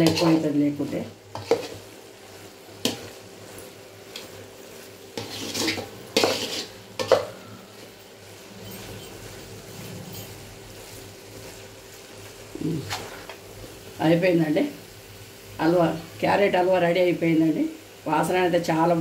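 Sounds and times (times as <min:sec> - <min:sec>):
spatula scraping a pan: 0:00.0 - 0:02.1, 0:02.8 - 0:11.7, 0:12.7 - 0:13.4.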